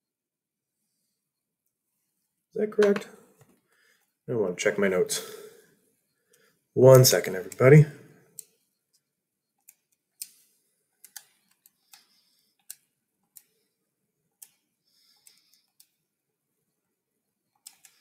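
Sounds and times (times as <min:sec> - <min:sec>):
faint clicks and taps: 0:08.3 - 0:16.0.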